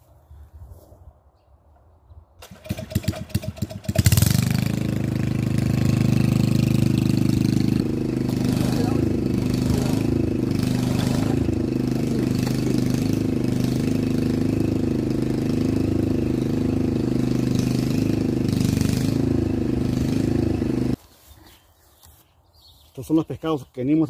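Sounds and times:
small engine humming: 2.4 - 21.0.

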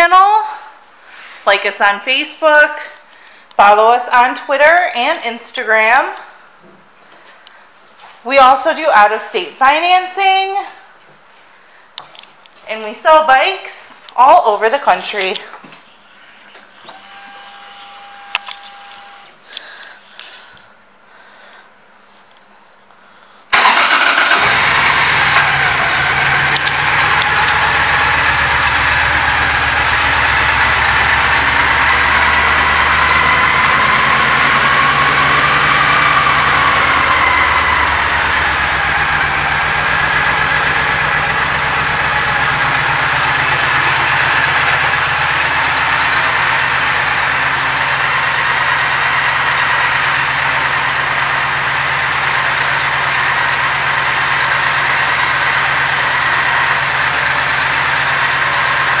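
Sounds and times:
motorcycle engine idling: 23.6 - 59.0.

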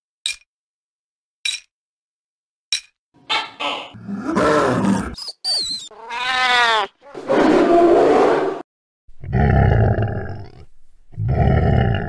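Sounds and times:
cat yowling: 5.9 - 8.1.

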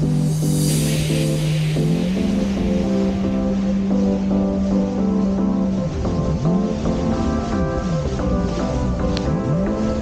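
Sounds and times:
electronic music: 0.0 - 10.0.

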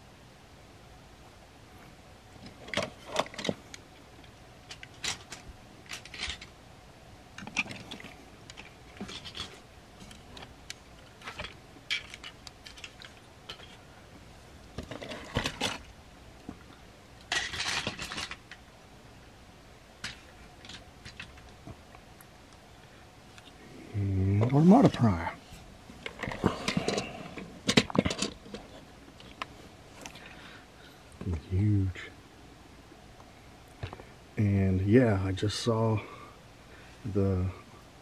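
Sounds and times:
plastic figures clicking and clacking: 4.7 - 6.5, 17.3 - 18.6
plastic rattle: 4.7 - 6.5, 7.4 - 13.8, 14.8 - 15.9, 17.3 - 18.6, 20.0 - 21.5, 26.0 - 29.4.

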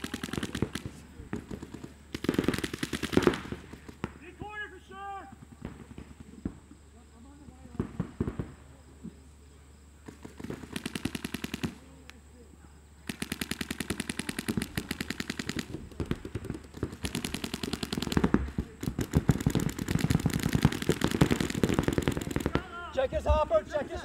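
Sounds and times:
paintball markers rapid firing: 0.0 - 4.2, 10.0 - 12.0, 13.0 - 22.7.

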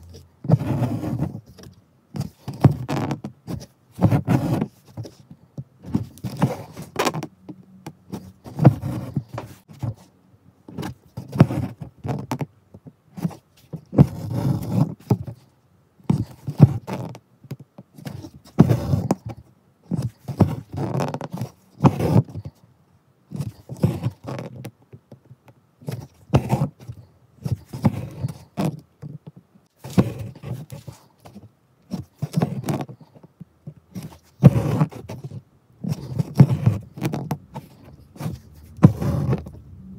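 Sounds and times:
needle and thread rubbing cloth: 0.0 - 7.3, 8.0 - 10.1, 13.2 - 15.4, 16.1 - 17.2, 18.0 - 22.6, 23.3 - 24.6, 25.8 - 28.8, 29.8 - 33.2, 33.9 - 39.9.

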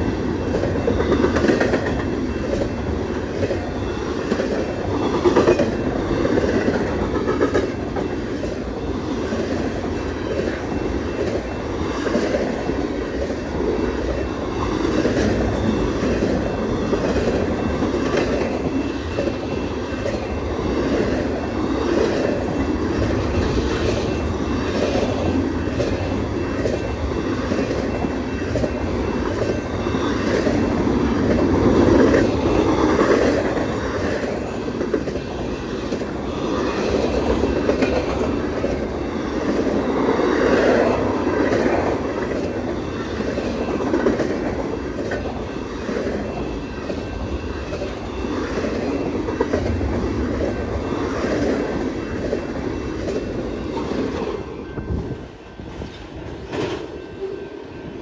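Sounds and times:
wheels clacking over rail joints: 0.0 - 54.4.

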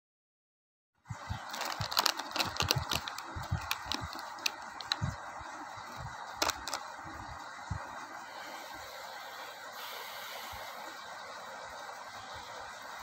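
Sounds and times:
steady hiss: 1.0 - 13.0
plastic wrapper crinkling: 1.3 - 5.1, 5.8 - 6.9.

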